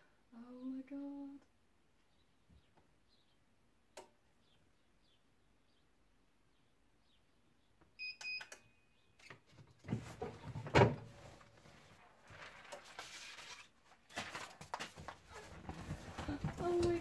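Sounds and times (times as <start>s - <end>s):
timer beeps: 8.0s - 8.8s
paper and fabric rustling: 9.9s - 17.0s.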